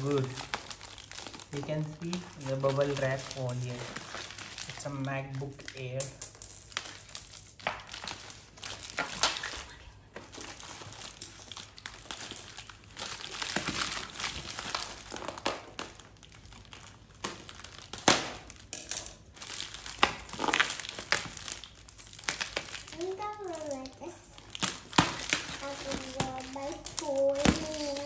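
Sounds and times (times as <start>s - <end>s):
bubble wrap crinkling: 0.0s - 5.9s, 7.6s - 28.0s.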